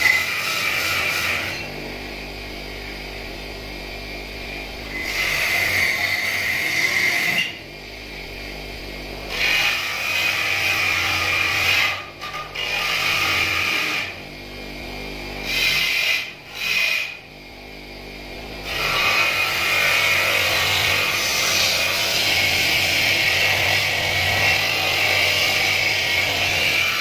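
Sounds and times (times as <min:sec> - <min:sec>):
metal grinding on polishing wheel: 0:00.0 - 0:01.7, 0:04.9 - 0:07.6, 0:09.3 - 0:14.2, 0:15.4 - 0:17.2, 0:18.6 - 0:27.0
motor hum: 0:00.0 - 0:27.0.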